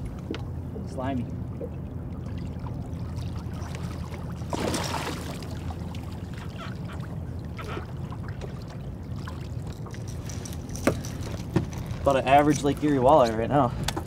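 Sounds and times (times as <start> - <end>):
boat engine running: 0.0 - 14.0.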